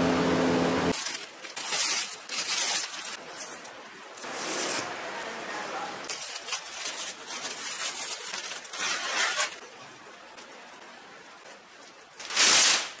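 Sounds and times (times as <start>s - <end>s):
masking tape ripping off metal: 0.9s - 4.9s, 6.1s - 9.6s, 12.1s - 13.0s.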